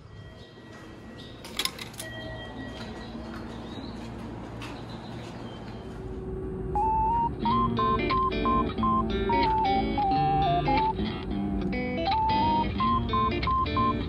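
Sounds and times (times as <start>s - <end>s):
station hall noise: 0.0s - 14.0s
ticket gate mechanism clatter: 1.3s - 3.1s
high electronic tones: 6.8s - 11.0s, 12.1s - 14.0s
guitar music: 6.8s - 14.0s.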